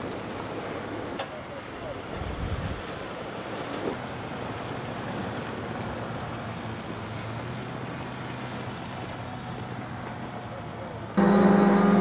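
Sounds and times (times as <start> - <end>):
wind rushing over microphone: 2.2 - 2.9.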